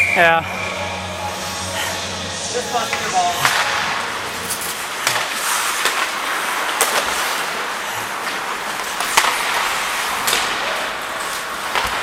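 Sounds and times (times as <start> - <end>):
skates scraping on ice: 1.4 - 12.0
hockey sticks and puck clacking: 2.7 - 12.0.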